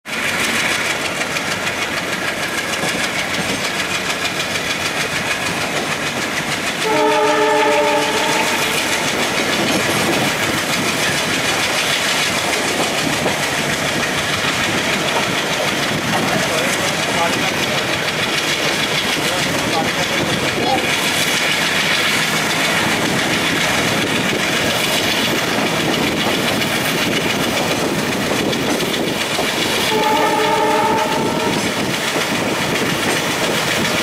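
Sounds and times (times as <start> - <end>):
diesel locomotive chugging: 0.1 - 34.0
train wheels clattering: 0.1 - 34.0
locomotive horn: 6.8 - 8.9, 29.8 - 31.7.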